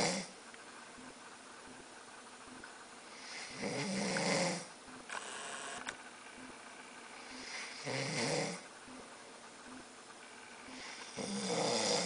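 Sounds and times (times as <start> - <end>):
man snoring: 0.0 - 0.3, 3.2 - 4.7, 7.2 - 8.6, 10.6 - 12.0.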